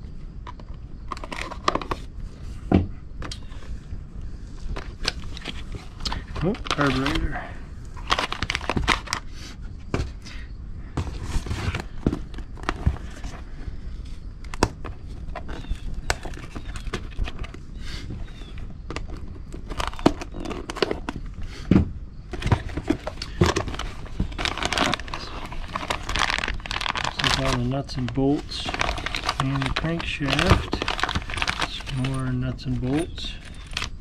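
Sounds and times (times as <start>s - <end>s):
cardboard rustling: 4.7s - 9.3s, 11.0s - 21.4s, 22.3s - 34.0s
plastic crinkling: 4.8s - 7.3s, 8.0s - 9.2s, 18.4s - 21.2s, 22.3s - 34.0s.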